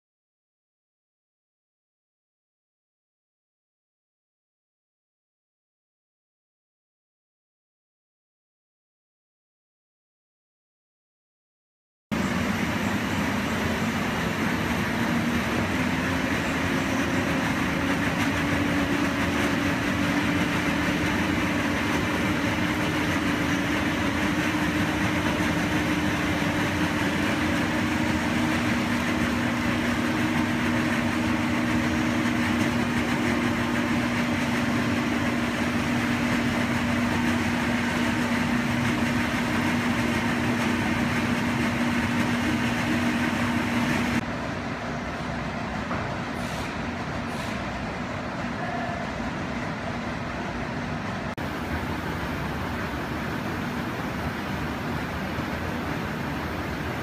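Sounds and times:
air movers blowing air: 12.1 - 57.0.

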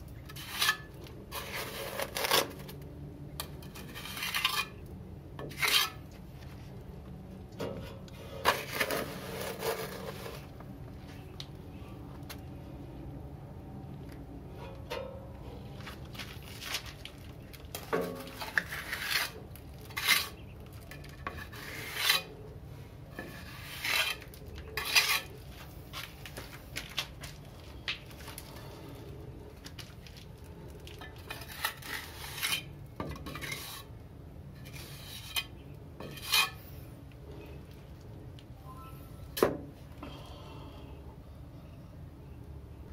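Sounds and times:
trowel scraping wet mortar: 0.2 - 2.8, 3.5 - 4.8, 5.5 - 6.1, 8.1 - 10.5, 17.7 - 22.4, 23.2 - 25.4, 31.2 - 33.9.

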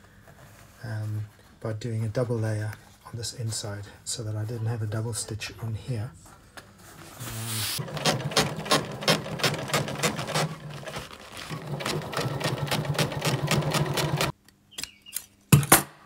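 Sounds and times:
sewing machine stitching: 7.8 - 14.3.

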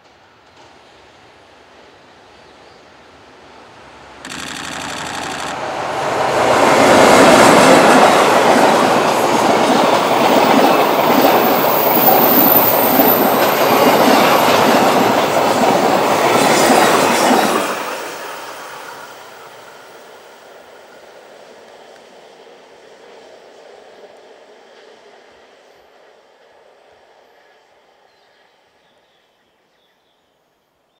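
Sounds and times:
freight train wheels rattling: 4.3 - 5.7.

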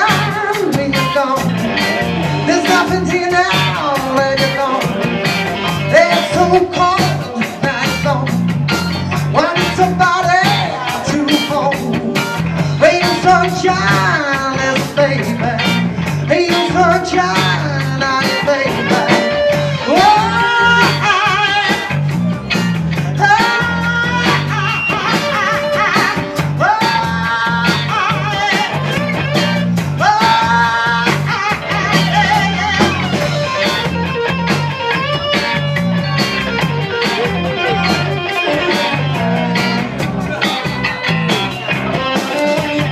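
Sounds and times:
bass guitar: 0.0 - 42.9
drums: 0.0 - 42.9
electric guitars: 0.0 - 42.9
person singing: 0.0 - 42.9.

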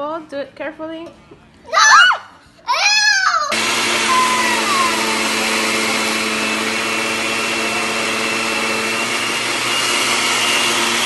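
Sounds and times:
blender motor hum: 3.5 - 11.0.

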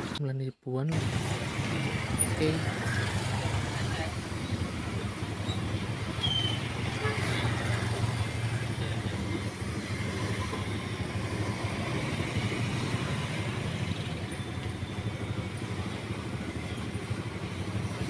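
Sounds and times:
road traffic rumble: 0.0 - 0.2, 0.9 - 18.0
vehicle engine running: 0.9 - 18.0.

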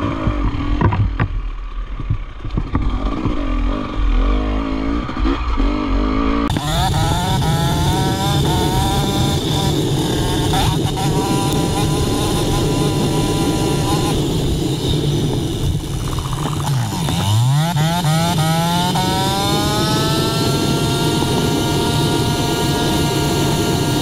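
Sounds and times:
dirt bike engine revving: 0.0 - 1.2, 2.6 - 24.0
steady rushing noise: 0.0 - 24.0.

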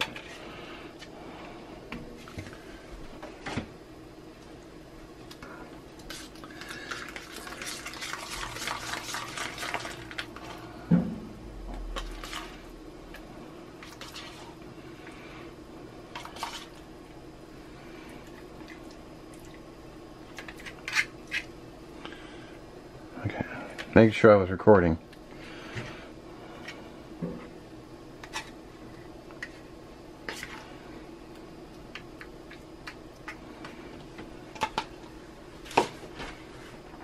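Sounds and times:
low hum: 8.4 - 20.2.

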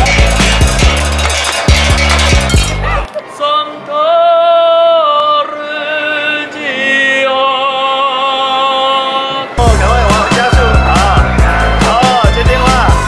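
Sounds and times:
drumming on metal pots: 0.0 - 2.8
man singing unaccompanied: 3.3 - 13.0.

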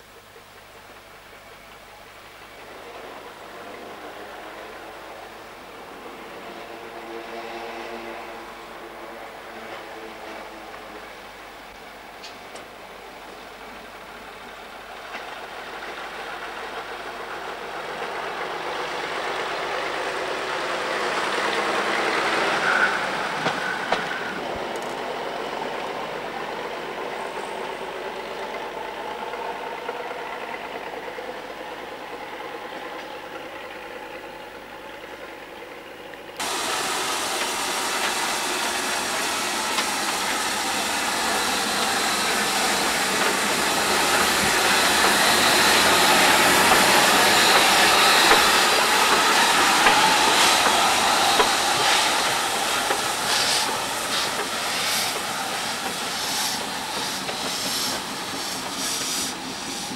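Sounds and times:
diesel railcar passing: 0.0 - 59.9
steam locomotive hissing: 0.8 - 34.2, 36.4 - 59.9
wheels on rails: 34.9 - 59.9.

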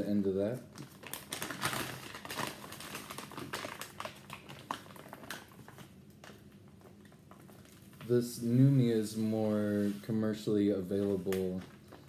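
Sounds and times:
plastic pouch crinkling: 0.4 - 8.5.

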